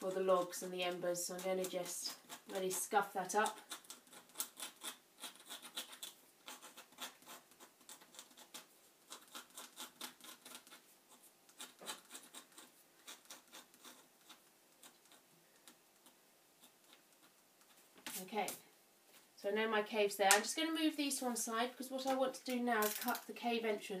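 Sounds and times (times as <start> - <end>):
needle scratching card: 1.4 - 18.2.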